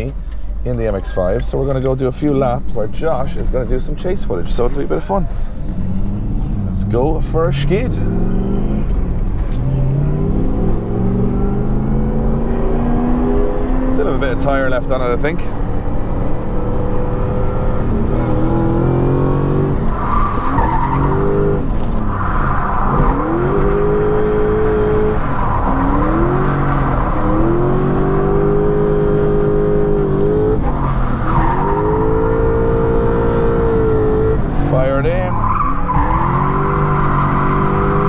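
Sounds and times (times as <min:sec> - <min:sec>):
car engine revving: 0:03.4 - 0:38.0.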